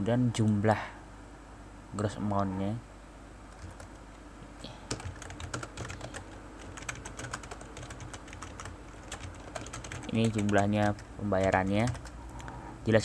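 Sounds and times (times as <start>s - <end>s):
typing on a keyboard: 3.5s - 4.0s, 4.9s - 12.5s.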